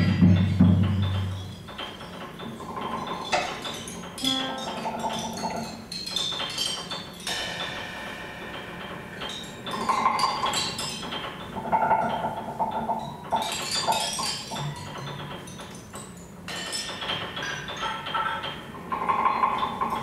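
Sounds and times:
bell-like metallic percussion: 0.0 - 20.0
piano: 0.0 - 20.0
modular synthesizer tones: 4.2 - 5.8
drum kit: 7.2 - 12.2.

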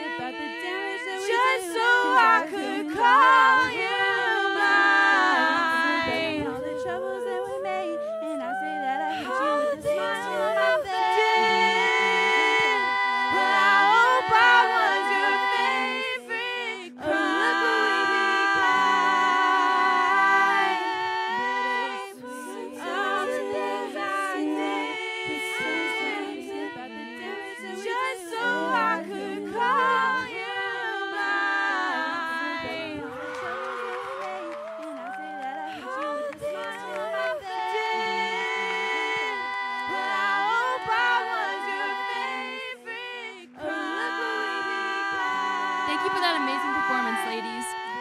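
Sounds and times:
woman singing a pop ballad: 45.8 - 48.0.

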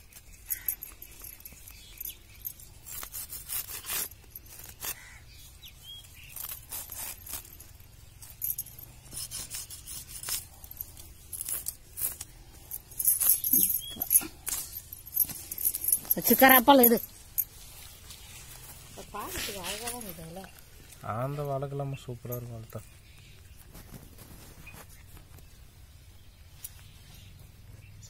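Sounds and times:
knife cutting fishing net: 2.8 - 5.3, 6.0 - 7.8, 9.0 - 12.4.

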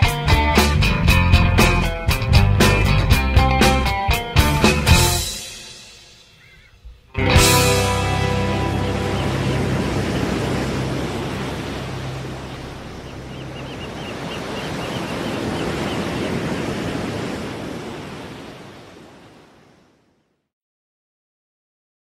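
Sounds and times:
waves washing on shore: 7.5 - 20.1.

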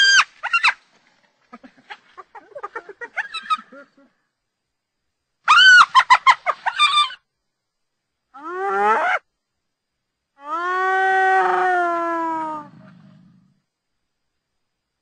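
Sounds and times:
hyena giggling cackles: 1.4 - 4.3, 5.5 - 7.2.

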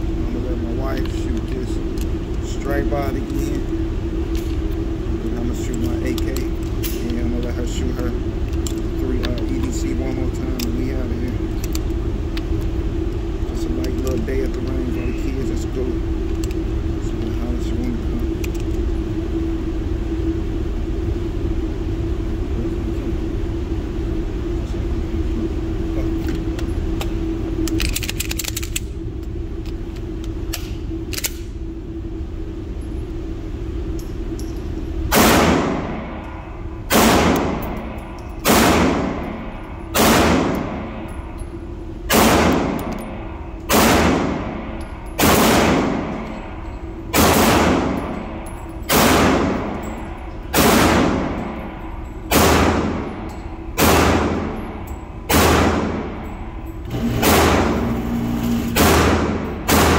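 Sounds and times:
steady hum: 0.0 - 59.9
gunshots with echo: 35.1 - 36.2, 36.9 - 37.7, 38.4 - 39.4, 40.0 - 41.0, 42.1 - 43.0, 43.7 - 44.6, 45.2 - 46.2, 47.1 - 48.1, 48.9 - 49.7, 50.5 - 51.6, 52.3 - 53.1, 53.8 - 54.6, 55.3 - 56.1, 57.2 - 57.9, 58.8 - 59.9.

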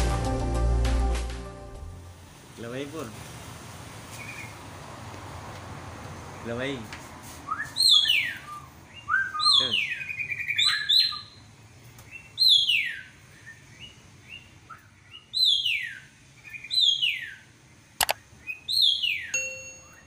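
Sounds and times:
sharp click: 18.0 - 18.2
bird singing sliding notes: 18.8 - 20.0.

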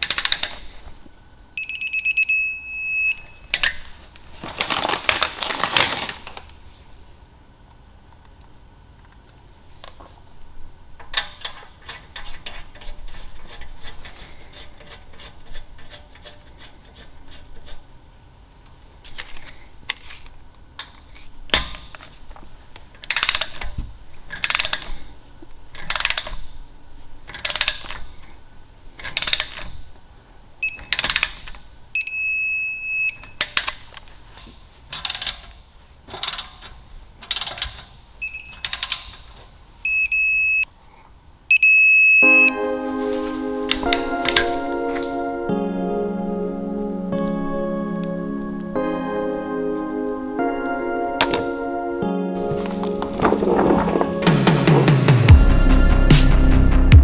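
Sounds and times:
steady electronic beep: 1.6 - 3.5, 39.9 - 40.6, 41.5 - 42.9.

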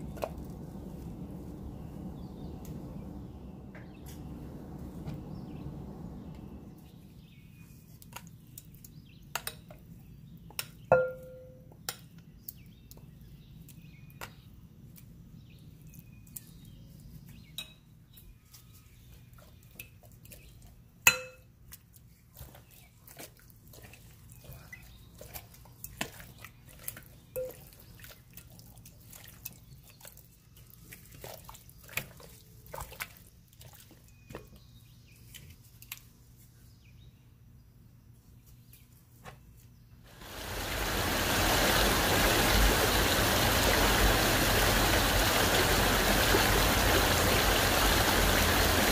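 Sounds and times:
metal tongs knocking bowl: 11.0 - 11.5
wet squelches: 21.7 - 34.4.

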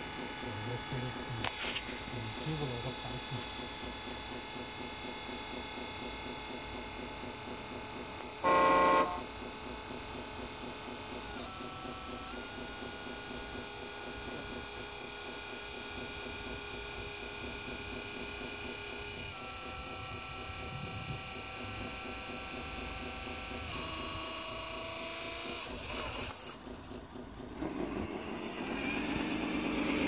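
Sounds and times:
electric motor whining: 0.0 - 4.6, 8.0 - 9.5, 10.5 - 15.5, 16.1 - 30.0
loud pitched tone: 8.4 - 9.3.

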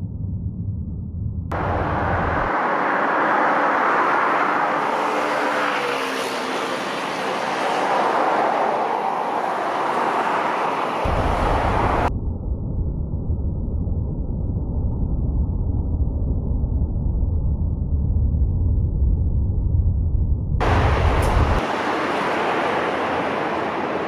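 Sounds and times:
passing cars: 1.5 - 12.1, 20.6 - 24.0.

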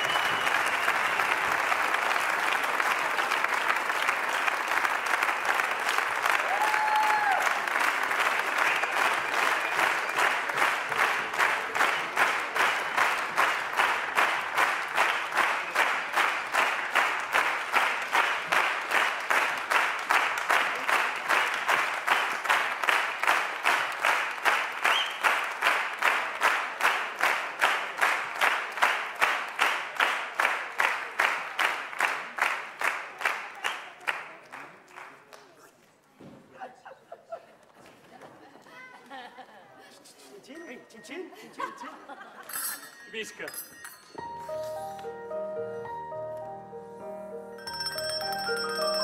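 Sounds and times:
audience clapping in unison: 0.0 - 35.9.

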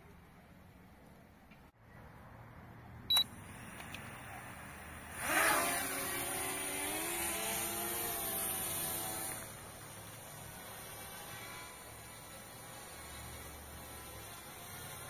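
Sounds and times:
drone propellers buzzing: 3.4 - 15.0.

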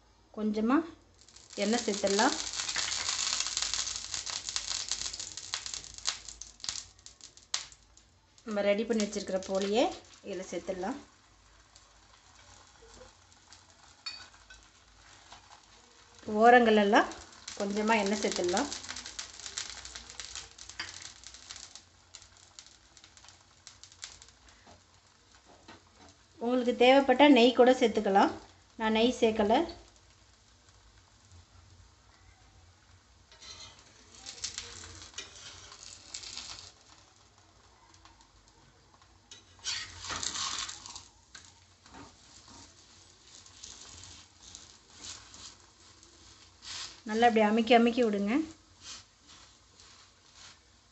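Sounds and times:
oil sizzling and crackling: 0.0 - 50.9
metal spatula scraping a pan: 13.8 - 15.7, 33.3 - 36.8, 39.3 - 47.0.

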